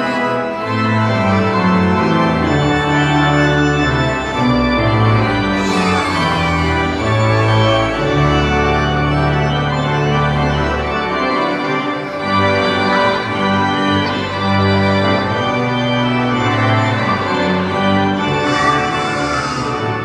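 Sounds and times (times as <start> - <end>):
church organ playing chords: 0.0 - 20.0.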